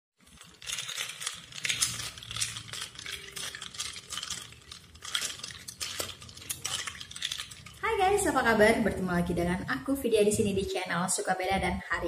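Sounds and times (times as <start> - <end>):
spoon clinking ice in glass: 0.2 - 8.2.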